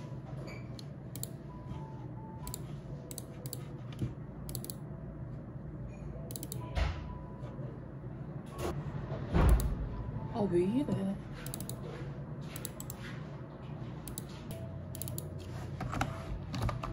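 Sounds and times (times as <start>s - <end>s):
keyboard keys clicking: 1.1s - 1.4s, 2.4s - 3.7s, 4.5s - 4.8s, 6.3s - 6.7s, 11.4s - 11.8s, 12.6s - 13.0s, 14.1s - 14.3s, 14.9s - 16.9s.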